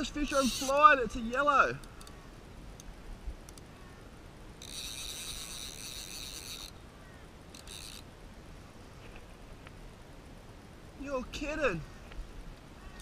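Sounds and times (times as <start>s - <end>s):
high steady insect buzz: 0.0s - 2.3s, 4.5s - 8.1s.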